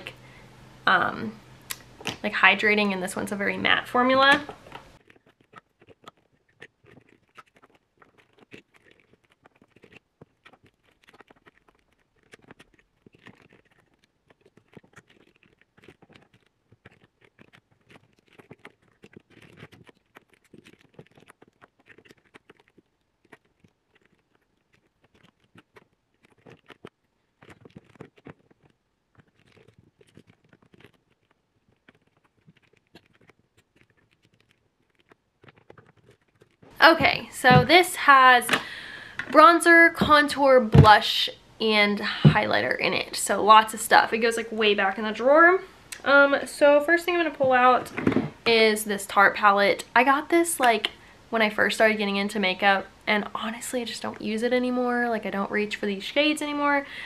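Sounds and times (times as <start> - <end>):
plastic containers clicking and scratching: 1.7 - 41.2.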